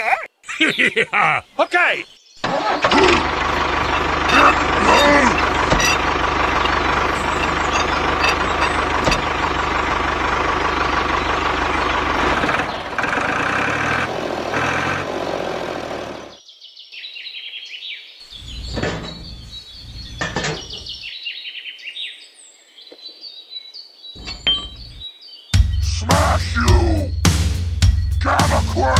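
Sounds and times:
birds chirping: 0.0s - 28.9s
engine running: 2.4s - 16.4s, 24.2s - 25.0s.

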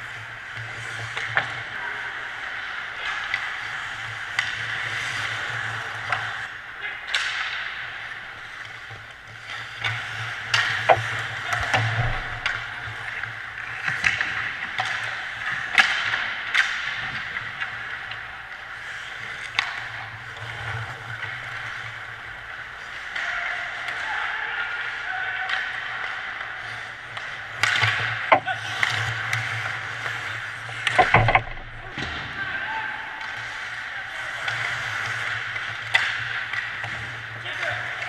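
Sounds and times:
skate blades scraping ice: 0.0s - 6.6s, 7.2s - 24.6s, 25.6s - 32.2s
hockey sticks and puck clacking: 0.0s - 38.0s.

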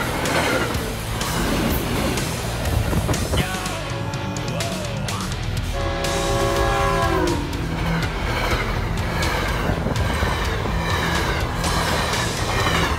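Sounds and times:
train coaches rumbling and clattering: 0.0s - 12.9s
train horn chord: 5.6s - 8.8s.

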